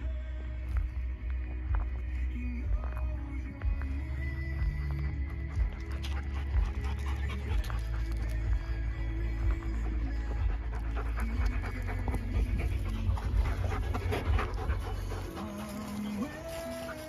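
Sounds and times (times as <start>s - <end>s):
dog panting hard: 4.7s - 17.0s.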